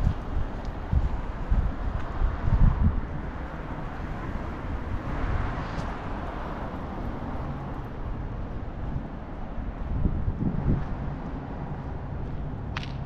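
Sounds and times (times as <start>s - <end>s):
car passing by: 0.0s - 13.0s
road traffic: 0.0s - 13.0s
wind buffeting microphone: 0.0s - 13.0s.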